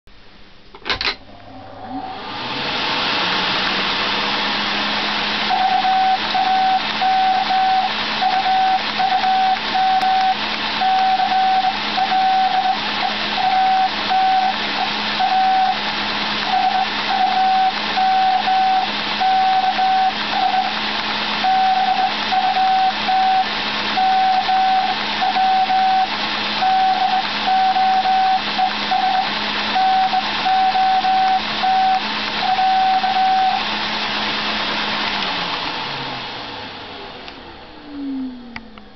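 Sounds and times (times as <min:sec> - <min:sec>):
vacuum cleaner running: 0:00.9 - 0:38.9
morse code tone: 0:05.5 - 0:15.8, 0:16.5 - 0:20.8, 0:21.4 - 0:33.6.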